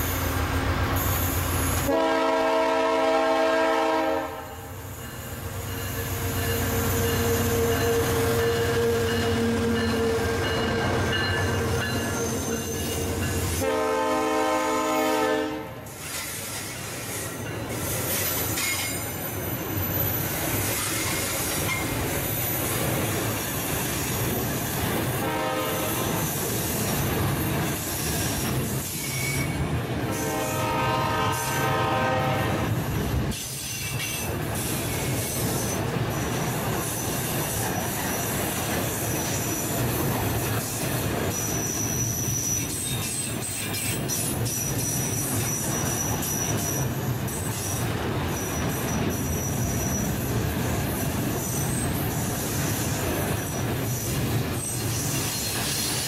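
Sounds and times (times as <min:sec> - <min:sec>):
locomotive and train running: 0:00.0 - 0:56.0
locomotive air horn chords: 0:01.8 - 0:04.8, 0:13.6 - 0:15.8, 0:25.2 - 0:26.1, 0:30.1 - 0:32.6.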